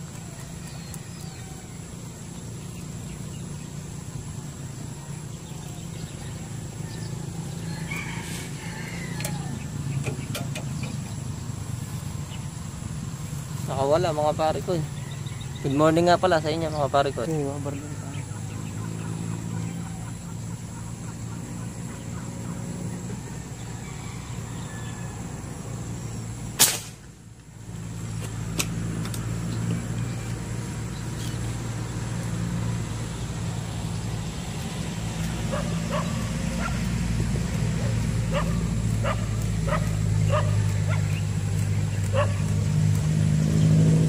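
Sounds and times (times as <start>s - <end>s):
low motor hum: 0.0s - 44.0s
airgun shot: 26.6s - 27.1s.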